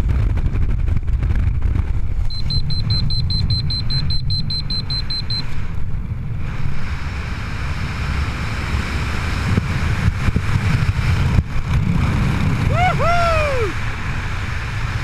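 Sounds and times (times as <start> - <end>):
wind rumbling on microphone: 0.0 - 15.0
high electronic beeps: 2.3 - 5.5.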